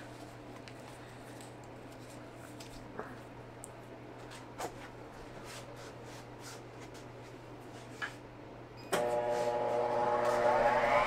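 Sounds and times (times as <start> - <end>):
band saw motor whining: 9.0 - 11.0.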